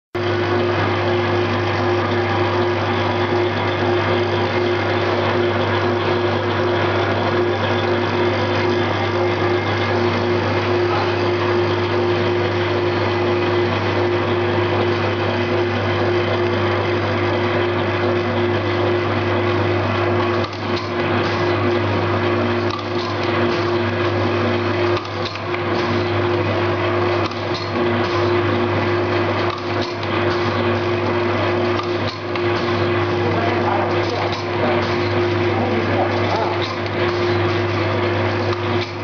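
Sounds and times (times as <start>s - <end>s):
machine motor hum: 0.2s - 39.0s
mechanical clatter: 22.6s - 24.0s, 24.8s - 39.0s.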